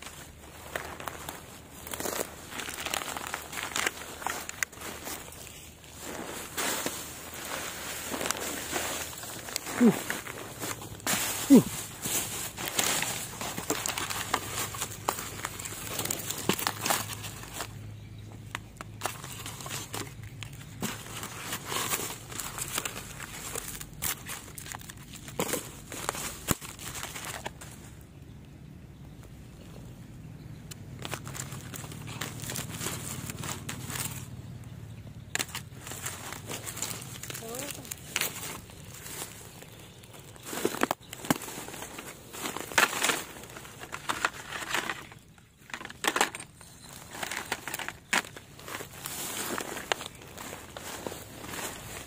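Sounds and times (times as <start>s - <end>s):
plastic bags crinkling: 0.0s - 27.8s, 30.9s - 34.4s, 35.3s - 52.0s.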